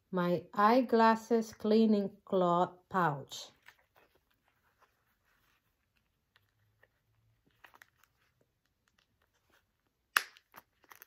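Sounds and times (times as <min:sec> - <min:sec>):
cloth rustling in pouch: 0:03.6 - 0:09.9.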